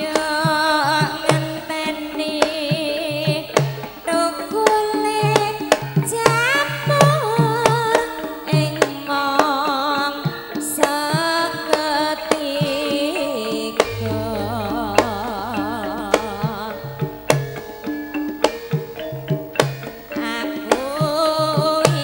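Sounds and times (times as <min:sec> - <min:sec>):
deep low note: 0:13.8 - 0:17.8
hand drum strokes: 0:13.8 - 0:18.0
metallophone tones: 0:13.9 - 0:18.0.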